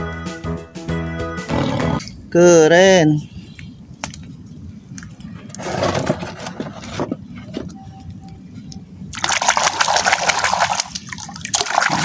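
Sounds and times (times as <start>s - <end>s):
hand splashing water in basin: 9.1s - 12.0s.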